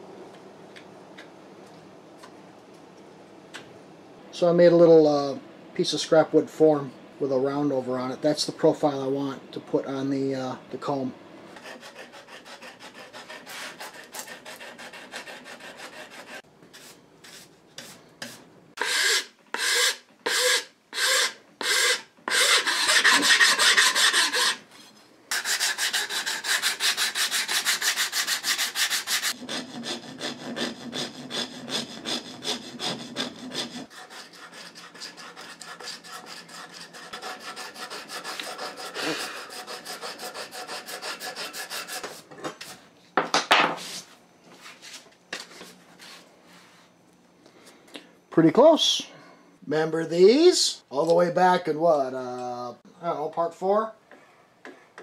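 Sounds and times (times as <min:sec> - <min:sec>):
sandpaper sanding body filler: 0:11.6 - 0:24.6, 0:25.3 - 0:42.2.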